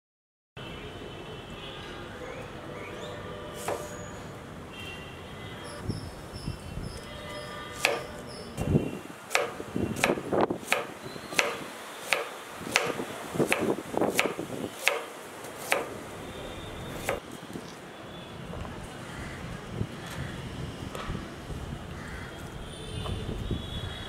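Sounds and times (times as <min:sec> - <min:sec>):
knife chopping on wooden board: 0:03.6 - 0:03.9, 0:07.8 - 0:08.1, 0:09.3 - 0:15.9, 0:17.0 - 0:17.2.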